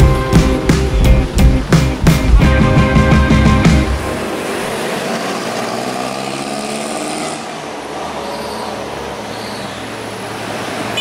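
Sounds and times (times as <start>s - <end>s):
vehicle engine running: 0.0s - 6.2s
road traffic noise: 0.0s - 11.0s.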